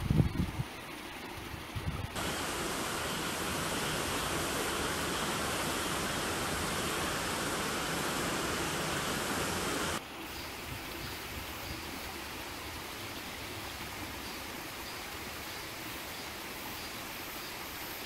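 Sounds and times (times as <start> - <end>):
stream rushing over rocks: 2.2 - 10.1.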